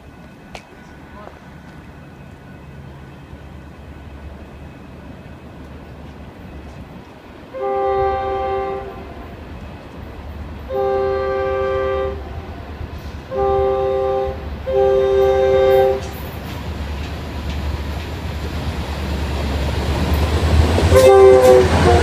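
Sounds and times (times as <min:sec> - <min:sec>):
locomotive air horn blasts: 0:07.5 - 0:09.3, 0:10.7 - 0:12.7, 0:13.3 - 0:16.2, 0:20.9 - 0:22.0.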